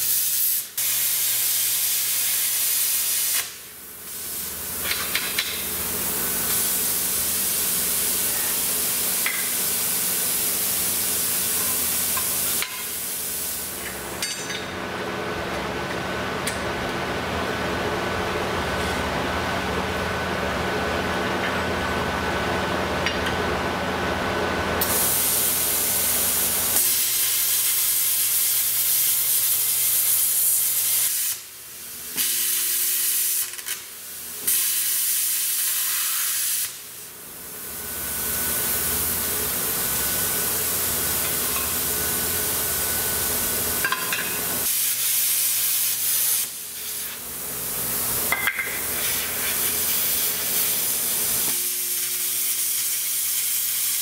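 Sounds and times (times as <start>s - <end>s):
plasma cutter hissing: 0.0s - 13.8s, 24.8s - 43.5s, 44.6s - 47.2s, 48.6s - 54.0s.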